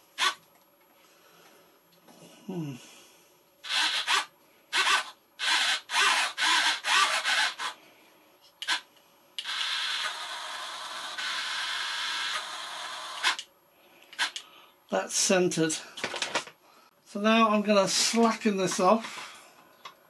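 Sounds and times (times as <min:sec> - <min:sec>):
small servo whirring: 0:00.2 - 0:00.4, 0:03.6 - 0:07.8, 0:08.6 - 0:08.8, 0:09.4 - 0:13.5, 0:14.2 - 0:14.4.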